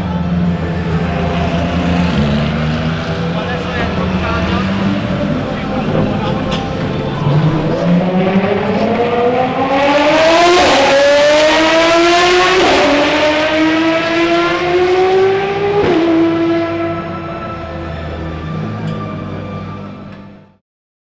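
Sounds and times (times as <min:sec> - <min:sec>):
race car engine accelerating: 0:00.0 - 0:20.4.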